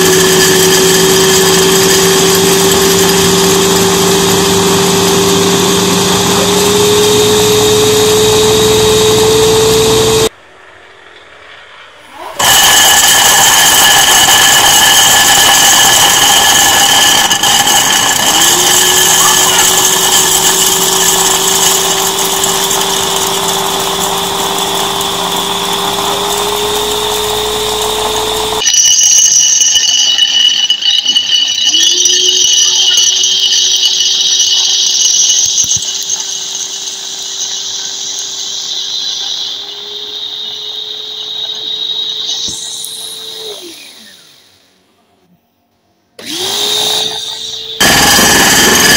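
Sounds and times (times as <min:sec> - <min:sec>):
blades grinding chocolate: 0:00.0 - 0:10.3, 0:12.4 - 0:44.3, 0:46.2 - 0:48.9
food chopper motor whining: 0:00.0 - 0:10.3, 0:12.2 - 0:44.7, 0:46.2 - 0:48.9.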